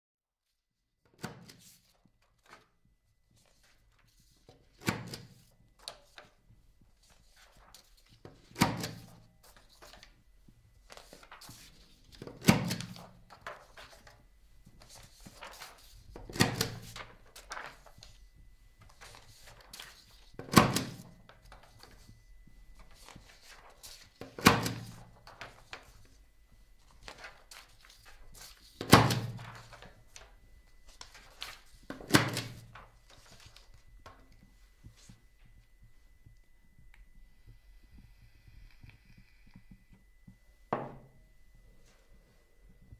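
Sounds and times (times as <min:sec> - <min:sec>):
faint steady high tone: 0:29.1 - 0:42.9.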